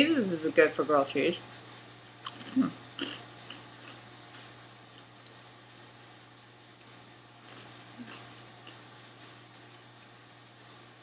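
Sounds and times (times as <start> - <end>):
low steady hum: 0.0 - 11.0
person chewing: 2.2 - 5.1, 6.8 - 9.8.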